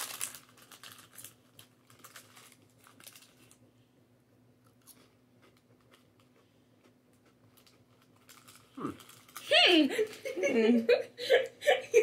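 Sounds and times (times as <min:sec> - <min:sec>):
crisp packet crinkling: 0:00.0 - 0:03.6, 0:07.2 - 0:10.3
low steady hum: 0:00.0 - 0:12.0.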